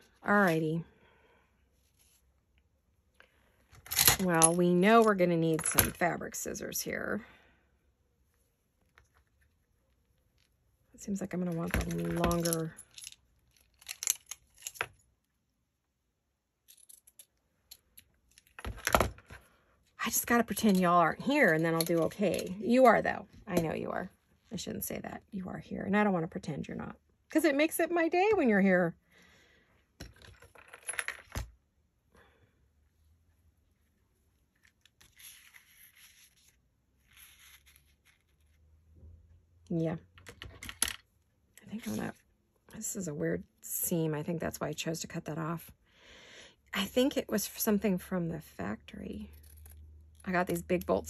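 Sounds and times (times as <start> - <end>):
lace rustling: 33.7 - 38.8.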